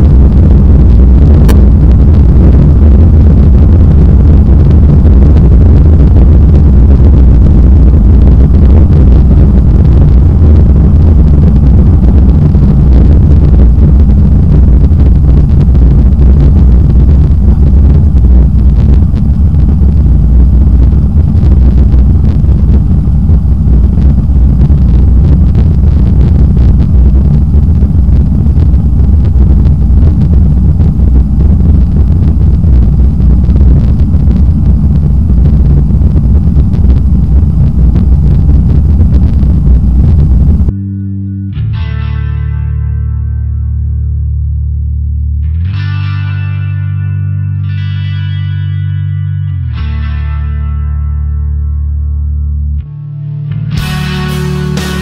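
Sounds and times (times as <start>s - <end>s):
jet engines rumbling: 0.0s - 40.7s
faint high whine: 0.0s - 45.7s, 51.9s - 55.0s.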